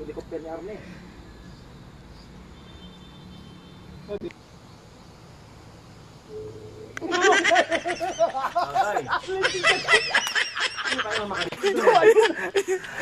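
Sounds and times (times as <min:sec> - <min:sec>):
open-air background: 0:00.0 - 0:13.0
people laughing loudly: 0:07.0 - 0:13.0.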